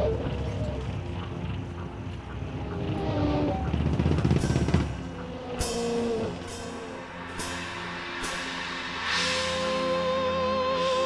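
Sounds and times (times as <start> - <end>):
low sustained music tones: 0.0 - 11.0.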